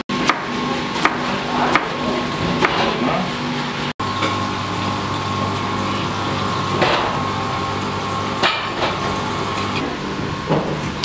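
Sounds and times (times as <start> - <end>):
machine humming: 3.2 - 10.6.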